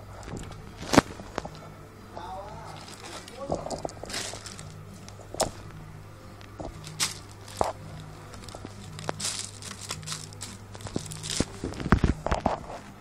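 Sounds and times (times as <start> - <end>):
steady low hum: 0.0 - 13.0
jacket fabric rustling: 0.2 - 13.0
plastic packaging crinkling: 2.5 - 5.6, 6.5 - 12.6.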